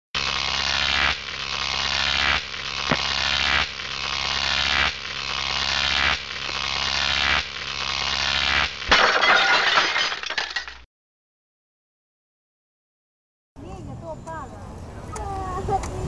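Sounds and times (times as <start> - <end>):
buzzing rising electronic swell: 0.2 - 8.9.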